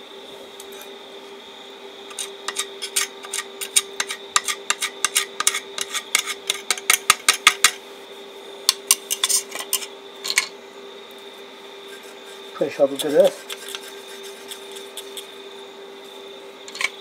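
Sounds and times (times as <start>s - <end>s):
welder steady hum: 0.0s - 17.0s
welding rod scratching on steel: 2.1s - 7.8s, 9.1s - 10.0s, 11.9s - 15.4s.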